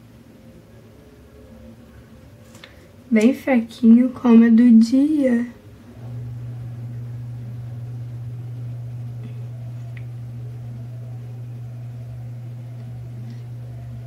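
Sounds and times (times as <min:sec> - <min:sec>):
low hum: 0:05.5 - 0:14.0.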